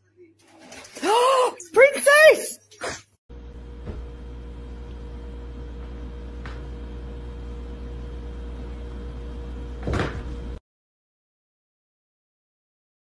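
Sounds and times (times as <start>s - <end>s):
appliance humming with whine: 3.3s - 10.6s
thump: 9.8s - 10.4s.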